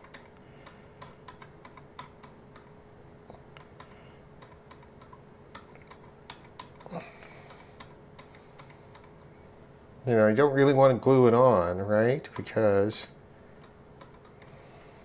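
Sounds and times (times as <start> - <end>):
tools clicking and tapping: 0.0 - 2.7, 3.6 - 9.3, 13.6 - 14.6
faint steady hum: 0.0 - 15.0.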